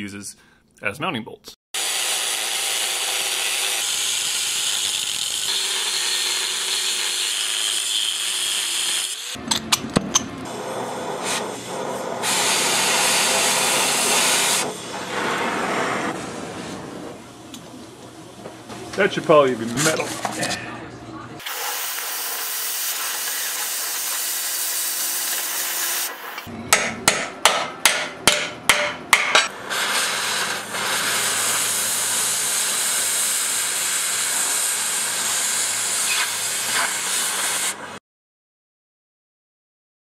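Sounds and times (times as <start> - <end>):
cutting torch hissing: 10.5 - 16.4, 21.4 - 26.5, 29.5 - 38.0
sharp knocks on metal: 26.7 - 29.5.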